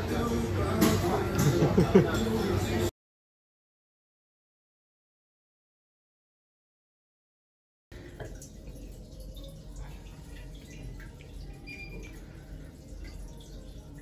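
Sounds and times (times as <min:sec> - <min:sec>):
water dripping and trickling: 0:07.9 - 0:14.0.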